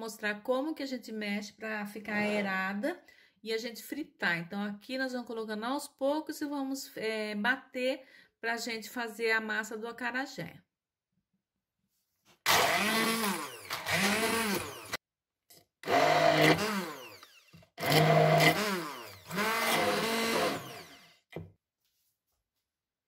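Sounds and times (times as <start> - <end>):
stick blender motor: 12.4 - 21.4.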